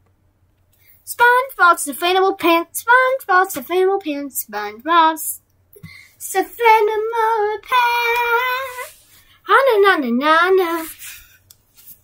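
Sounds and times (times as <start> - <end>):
person singing in a high voice: 6.2 - 11.0.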